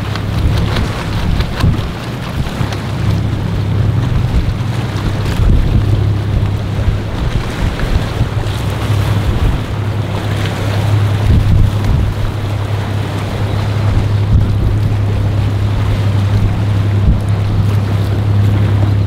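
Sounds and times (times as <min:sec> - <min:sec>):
strong wind on microphone: 0:00.0 - 0:19.0
surf in rough water: 0:00.0 - 0:19.0.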